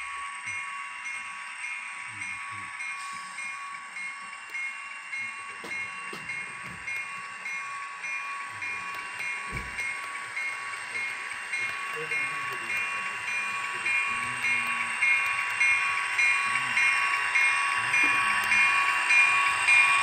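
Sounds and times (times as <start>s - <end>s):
bell ringing: 0.0s - 20.0s
model train wheels rumbling: 0.0s - 20.0s
steady whine: 0.0s - 20.0s.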